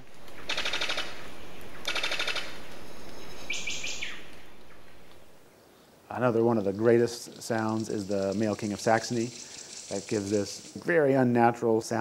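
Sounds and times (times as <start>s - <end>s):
bird call of rapid dry pulses: 0.4s - 5.3s, 6.6s - 10.8s.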